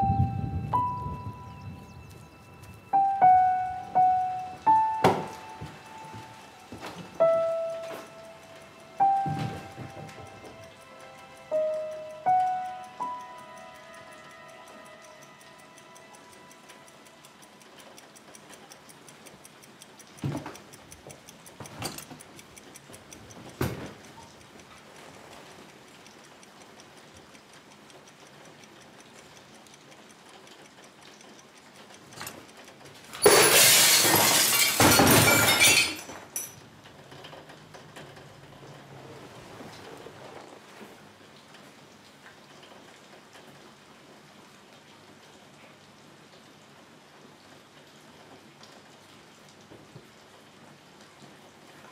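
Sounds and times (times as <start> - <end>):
clock ticking: 0.0 - 34.8.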